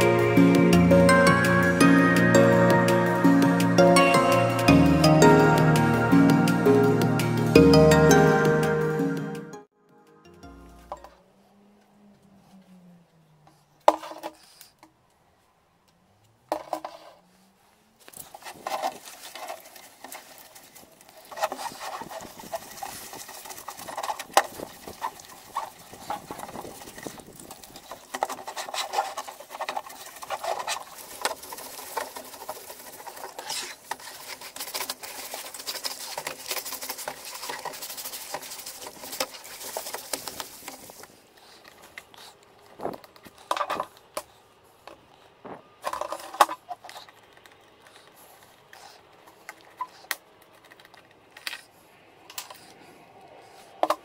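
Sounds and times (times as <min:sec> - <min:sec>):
brush scrubbing plastic: 0:18.0 - 0:42.6.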